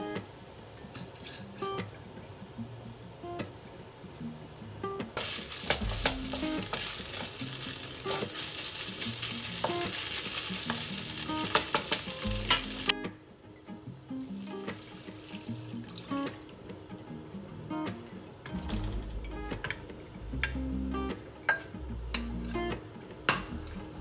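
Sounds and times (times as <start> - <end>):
meat sizzling in a frying pan: 5.2 - 13.0, 14.2 - 16.6.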